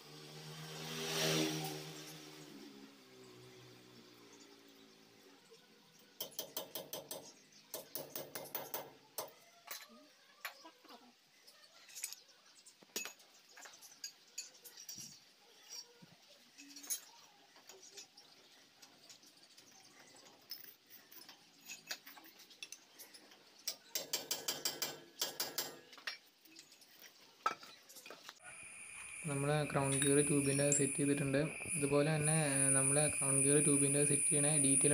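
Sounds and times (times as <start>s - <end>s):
metal parts and tools clicking: 11.7s - 16.0s, 18.8s - 28.4s.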